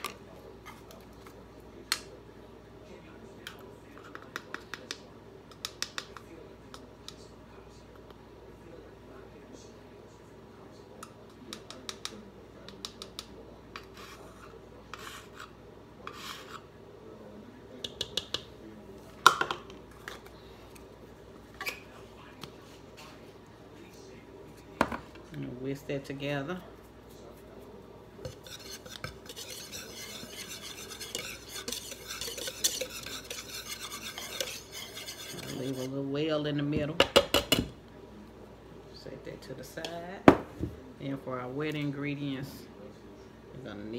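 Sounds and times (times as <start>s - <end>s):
spoon scraping in can: 13.8s - 16.7s, 28.2s - 36.0s.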